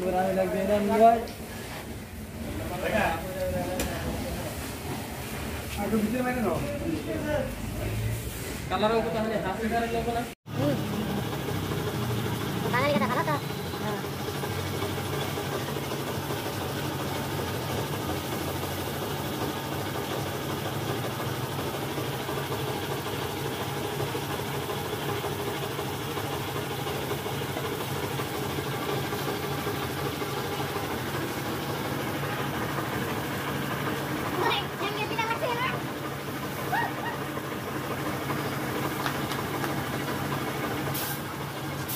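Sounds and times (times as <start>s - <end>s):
engine humming steadily: 10.5s - 41.9s.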